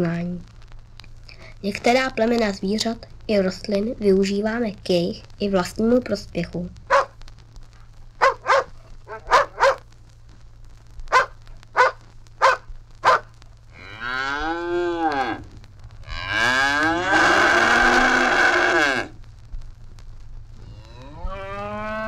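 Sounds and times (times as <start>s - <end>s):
dog barking: 6.9s - 7.2s, 8.2s - 9.8s, 11.1s - 13.3s
cow mooing: 16.1s - 19.2s, 20.7s - 22.0s.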